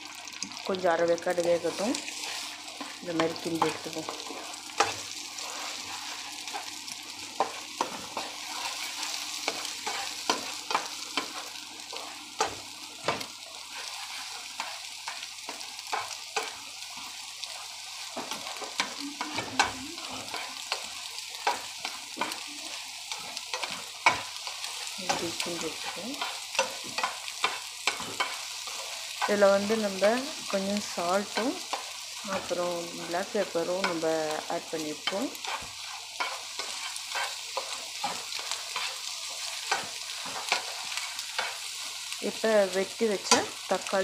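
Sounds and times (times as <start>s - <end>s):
eggs sizzling in oil: 0.0s - 44.0s
spatula scraping and tapping pan: 7.4s - 22.4s, 23.1s - 30.2s, 31.2s - 41.7s.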